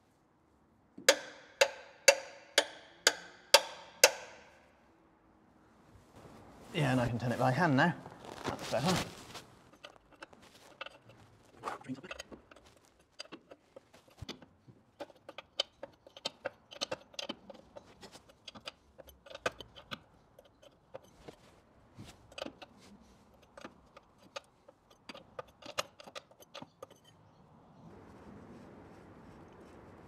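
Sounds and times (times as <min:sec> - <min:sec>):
spanner clicking on drain plug: 0:01.0 - 0:04.4, 0:12.1 - 0:21.2, 0:23.4 - 0:27.2.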